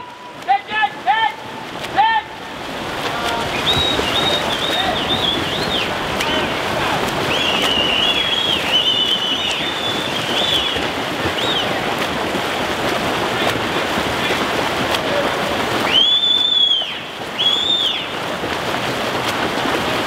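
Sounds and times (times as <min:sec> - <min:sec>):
water splashing from swimmers: 0:00.0 - 0:20.0
high whistled tones: 0:03.5 - 0:05.9, 0:07.3 - 0:10.8, 0:15.9 - 0:18.1.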